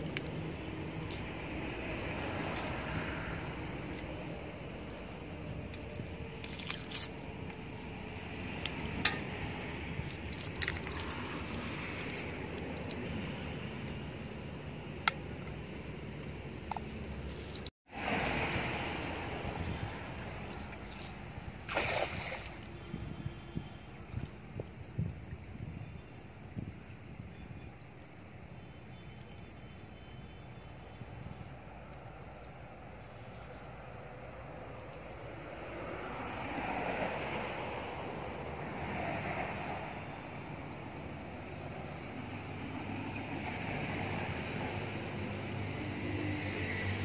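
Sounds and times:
wet net rustling on ground: 0.0 - 9.2, 10.0 - 13.0
water sloshing around legs: 0.0 - 13.1, 19.5 - 22.8
water splash: 5.7 - 12.4, 16.8 - 22.9.

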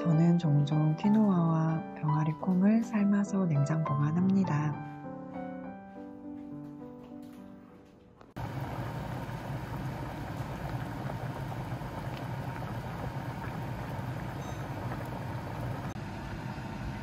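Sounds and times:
water boiling in a saucepan: 8.4 - 17.0.

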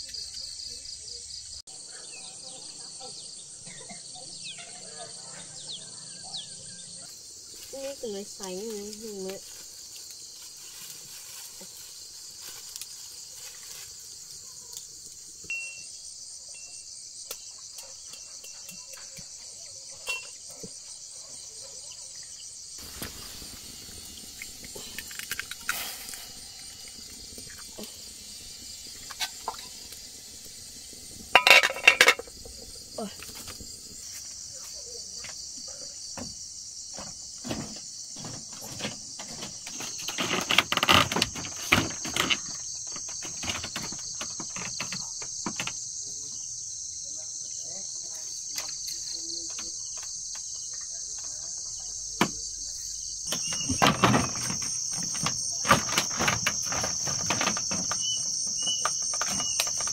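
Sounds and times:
insects buzzing: 0.0 - 59.9.

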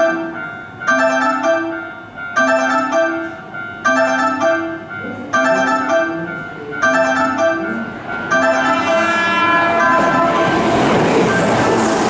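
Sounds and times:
electronic railway warning chime: 0.0 - 12.0
train rumble: 4.8 - 12.0.

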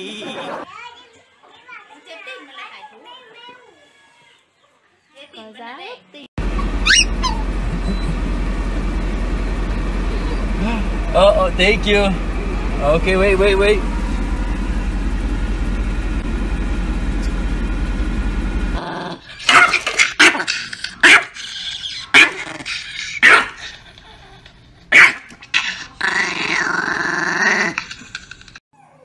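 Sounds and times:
car interior rumble: 6.4 - 18.8
dog snarling and barking: 18.8 - 23.8, 24.9 - 28.1.

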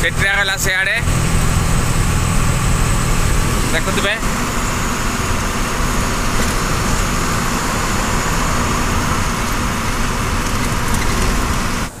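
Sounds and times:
truck engine drone: 0.0 - 12.0.

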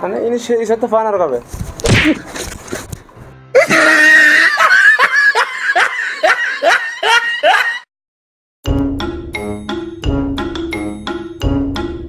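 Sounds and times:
loud laughter: 3.6 - 7.9.

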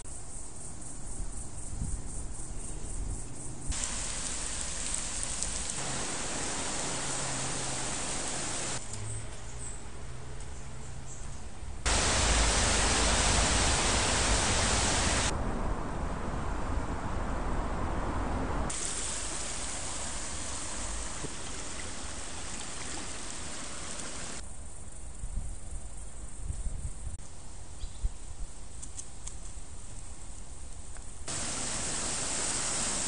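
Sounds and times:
creek water rushing: 3.8 - 8.8, 11.9 - 15.3, 18.7 - 24.4, 31.3 - 33.0.

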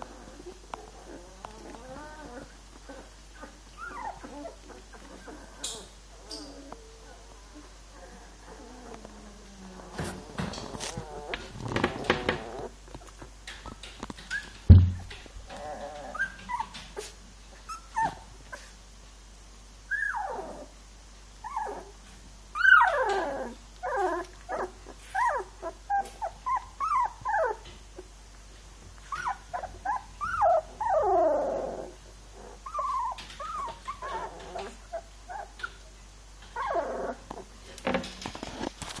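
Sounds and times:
puppies whimpering and whining: 0.0 - 18.8, 19.9 - 20.7, 21.4 - 28.1, 29.0 - 37.5
sharp thump: 14.7 - 15.1.

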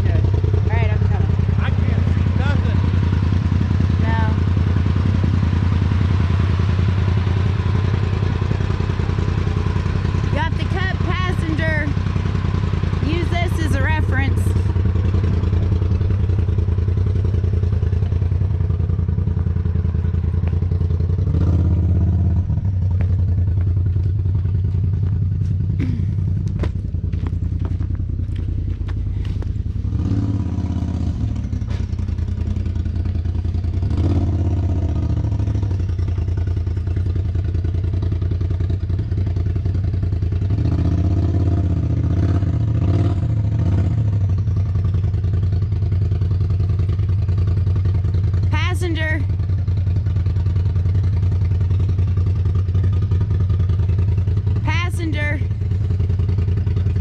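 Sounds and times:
vehicle engine idling and revving: 0.0 - 57.0.

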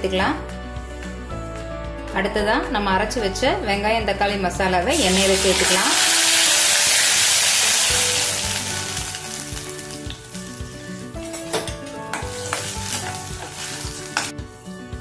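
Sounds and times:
paste sizzling in hot oil: 4.9 - 11.4, 12.2 - 14.7.

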